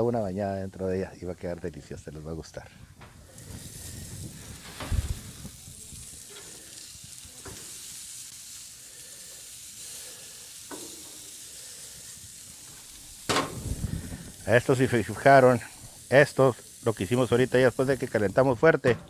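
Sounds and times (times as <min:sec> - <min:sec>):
meat sizzling on a grill: 0:00.0 - 0:02.6, 0:03.2 - 0:18.9
loud thump: 0:13.3 - 0:13.8.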